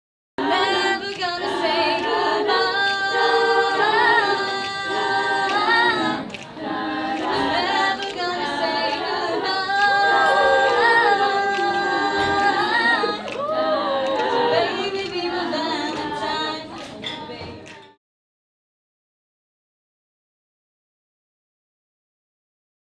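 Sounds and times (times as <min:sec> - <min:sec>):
girls singing a cappella: 0:00.4 - 0:18.0.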